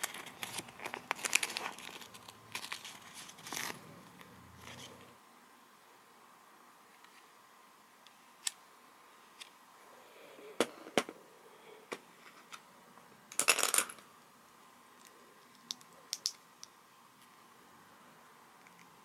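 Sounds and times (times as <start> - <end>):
plastic bricks clicking together: 15.5 - 16.7.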